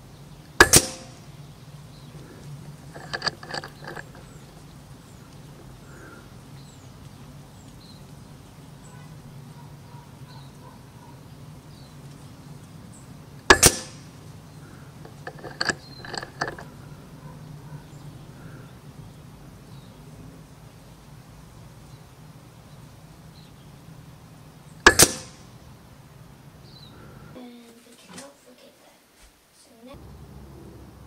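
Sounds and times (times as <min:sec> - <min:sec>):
rifle lever mechanical clicks: 0:00.6 - 0:01.2, 0:13.5 - 0:14.0, 0:24.9 - 0:25.3
air rifle shot: 0:00.6 - 0:01.3, 0:13.5 - 0:14.1, 0:24.9 - 0:25.4.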